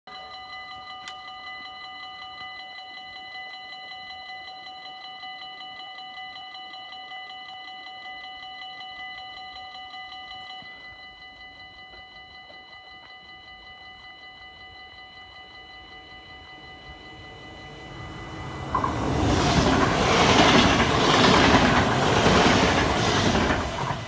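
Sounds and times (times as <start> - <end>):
level-crossing bell ringing: 0.1 - 24.0.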